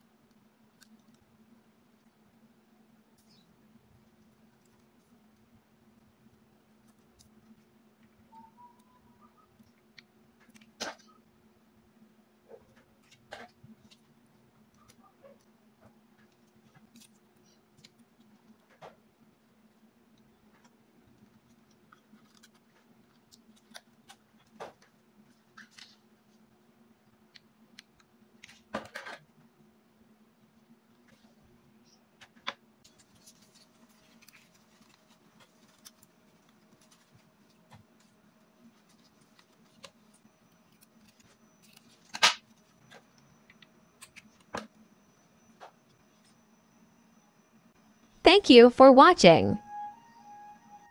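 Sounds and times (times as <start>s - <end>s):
faint steady hum: 0.0s - 50.9s
hands handling paper: 32.9s - 42.6s.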